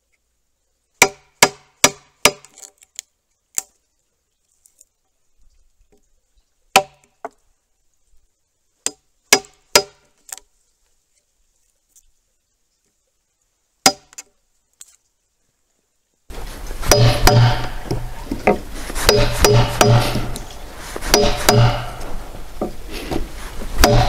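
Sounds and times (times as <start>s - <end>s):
chisel struck into timber: 1.0s - 2.6s, 8.9s - 10.0s, 13.9s - 14.2s, 16.8s - 22.8s, 23.8s - 24.0s.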